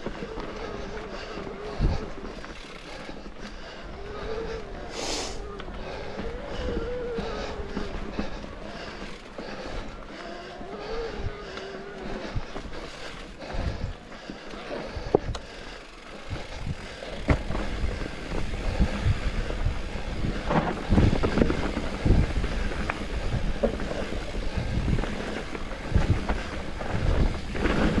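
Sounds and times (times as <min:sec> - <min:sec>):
bike tyres rumbling on dirt trail: 0:00.0 - 0:28.0
bike knocks and rattles: 0:14.6 - 0:18.8.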